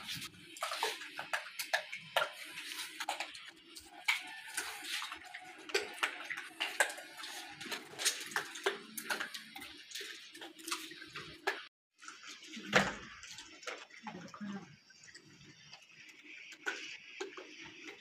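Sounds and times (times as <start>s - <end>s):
monkeys picking grain off concrete: 0.0s - 18.0s.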